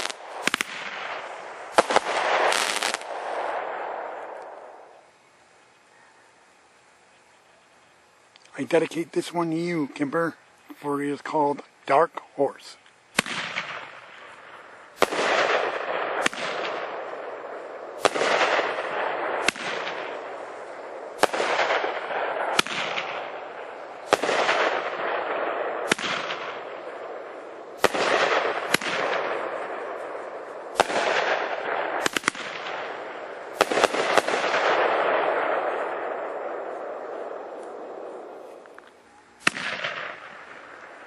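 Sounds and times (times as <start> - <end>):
firework bangs: 0.0 - 5.0, 13.1 - 38.8, 39.4 - 41.0
firework burst hissing: 0.0 - 5.0, 13.1 - 38.7.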